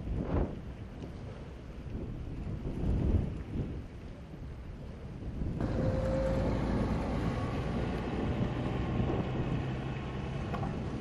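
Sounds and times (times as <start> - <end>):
wind buffeting microphone: 0.0 - 11.0
faint engine hum: 5.6 - 11.0.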